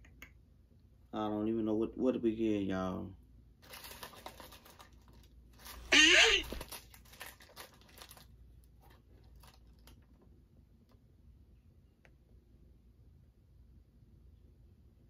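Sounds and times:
paper and plastic wrapper rustling: 3.6s - 10.2s.

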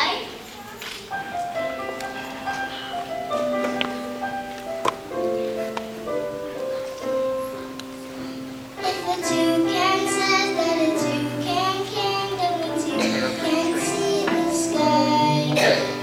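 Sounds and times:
musical accompaniment held notes: 1.0s - 16.0s
children singing: 8.8s - 16.0s.

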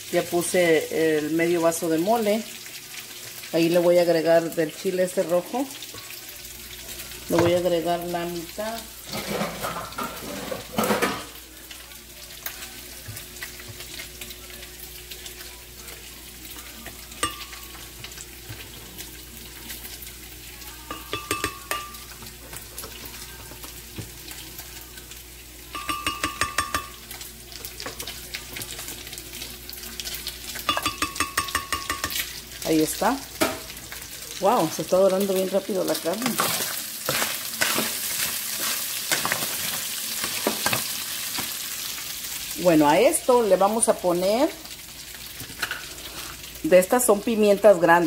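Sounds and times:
pork sizzling in a pan: 0.0s - 48.0s.

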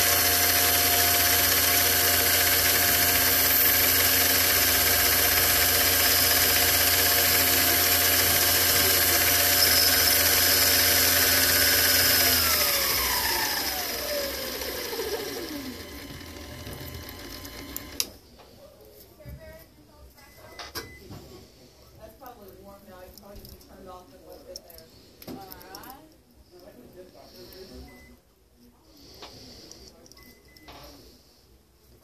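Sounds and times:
metal lathe whining: 0.0s - 18.1s.

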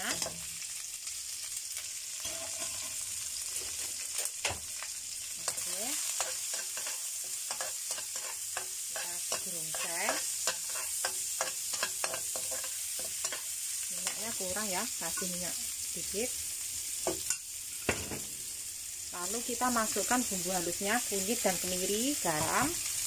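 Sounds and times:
food sizzling in hot oil: 0.0s - 23.0s
spatula scraping and tapping pan: 2.2s - 4.6s, 5.4s - 14.3s.

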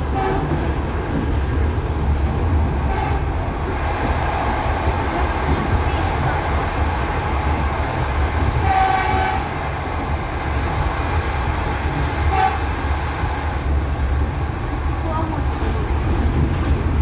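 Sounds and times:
train rumbling: 0.0s - 17.0s
train horn: 0.1s - 0.5s, 2.9s - 3.3s, 8.6s - 9.6s, 12.3s - 12.7s.

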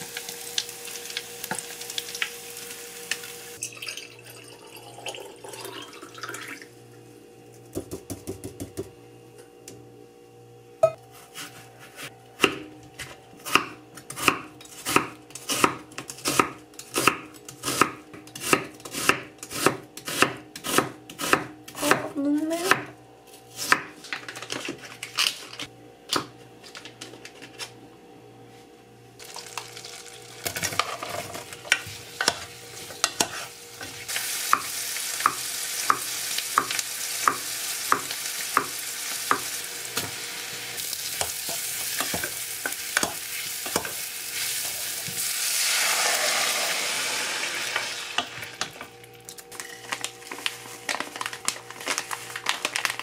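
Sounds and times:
butter sizzling in a pot: 0.0s - 3.7s, 29.2s - 48.8s
knife chopping on wooden board: 11.3s - 22.1s.

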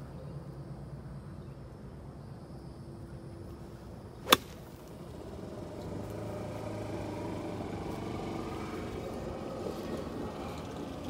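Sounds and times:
golf club striking ball: 4.2s - 5.0s
golf cart engine running: 4.2s - 11.0s.

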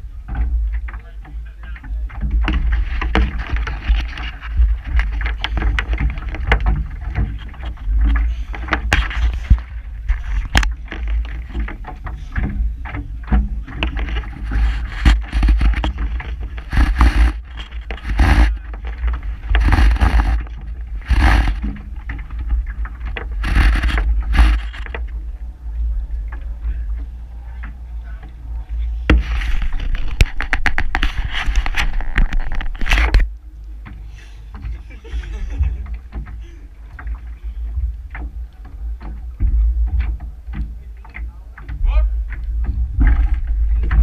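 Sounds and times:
rope scraping and rubbing on hull: 0.0s - 44.0s
steady low rumble: 0.0s - 44.0s.

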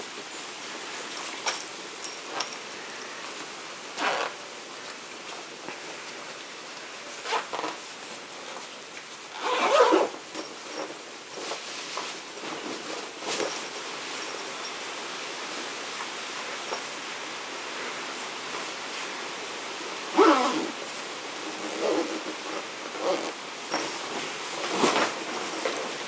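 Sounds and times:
steady hiss: 0.0s - 26.0s
zipper scraping: 4.0s - 4.5s, 7.2s - 7.8s, 9.3s - 11.0s, 20.1s - 26.0s
fabric bag rustling: 21.4s - 26.0s.

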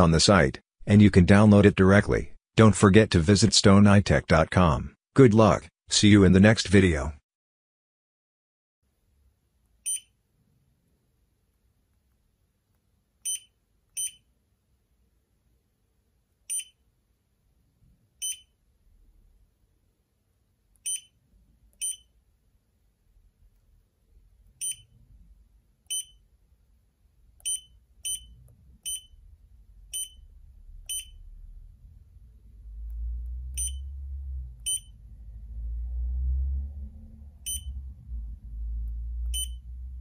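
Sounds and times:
short high-pitched beeps: 9.8s - 10.2s, 13.2s - 14.3s, 16.5s - 16.8s, 18.2s - 18.5s, 20.8s - 21.2s, 21.8s - 22.1s, 24.6s - 24.9s, 25.9s - 26.2s, 27.4s - 29.2s, 29.9s - 30.2s, 30.9s - 31.2s, 33.6s - 33.9s, 34.6s - 34.9s, 37.4s - 37.8s, 39.3s - 39.6s
low rumble: 30.4s - 40.0s.

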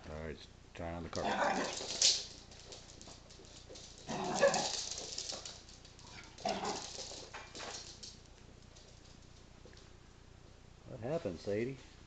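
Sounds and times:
small dogs barking: 1.2s - 2.2s, 4.1s - 5.0s, 6.0s - 7.0s.

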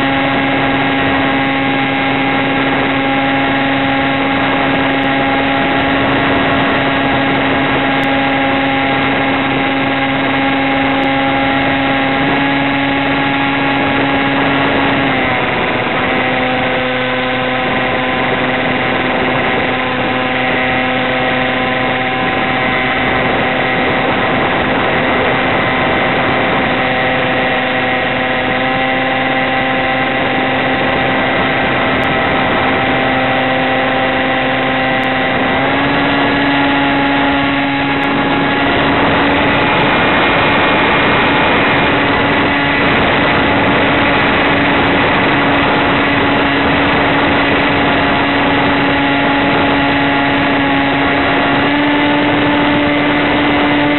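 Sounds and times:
model plane electric motor: 0.0s - 53.9s
rushing air: 0.0s - 53.9s.

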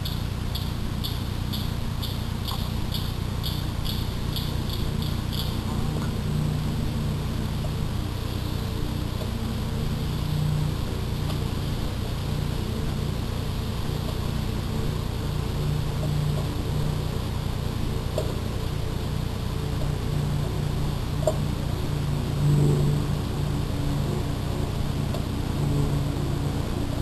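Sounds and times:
faint ticks: 0.0s - 6.2s, 18.1s - 18.4s
low buzzing hum: 0.0s - 27.0s.

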